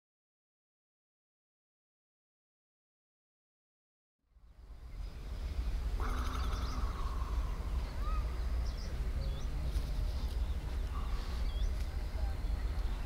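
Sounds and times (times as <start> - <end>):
steady low rumble: 4.3 - 13.0
bird chirps: 4.8 - 13.0.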